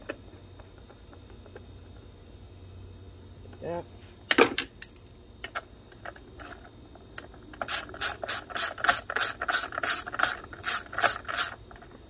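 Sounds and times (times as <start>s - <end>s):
hand ratchet clicking: 7.6s - 11.6s.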